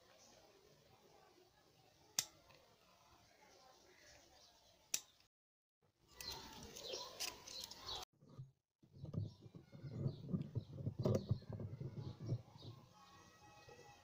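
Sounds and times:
birds calling: 0:06.1 - 0:08.4.

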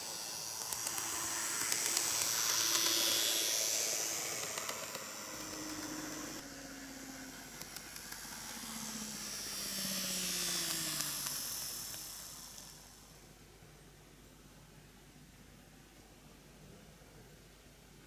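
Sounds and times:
model train motor whine: 0:00.0 - 0:13.4
wheel and rail hiss: 0:00.0 - 0:13.4.

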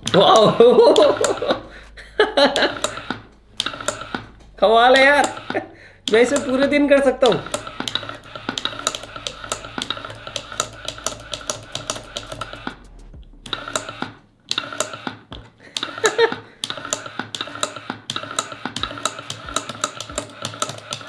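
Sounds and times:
toggle switch clicking: 0:00.0 - 0:01.6, 0:02.5 - 0:12.8
small motor whirring: 0:02.3 - 0:21.0.

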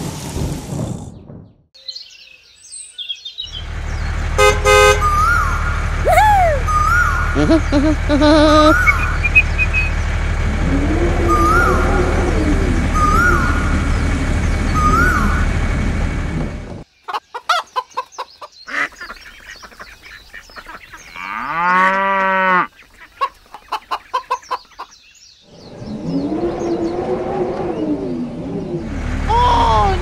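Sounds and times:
loud busy mix with rising chirp: 0:01.8 - 0:15.8, 0:22.7 - 0:30.0
chickens clucking: 0:17.0 - 0:21.0, 0:22.8 - 0:24.9.

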